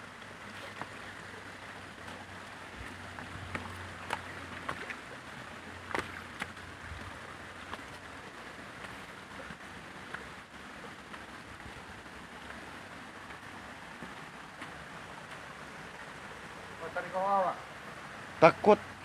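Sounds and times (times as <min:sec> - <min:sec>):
water rushing in rocky stream: 0:00.0 - 0:19.0
footsteps on rocks: 0:02.0 - 0:10.4.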